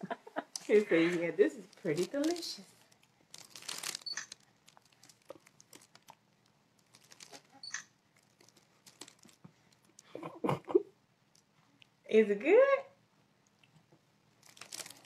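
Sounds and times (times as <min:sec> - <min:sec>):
plastic sheeting crinkling: 0:00.5 - 0:06.2, 0:06.8 - 0:07.6, 0:08.2 - 0:10.1, 0:14.4 - 0:15.0.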